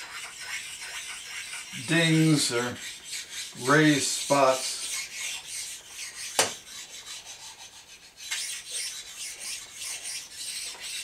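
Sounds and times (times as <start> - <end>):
stone rasping on metal: 0.0 - 11.0
sharp knock: 6.4 - 6.6.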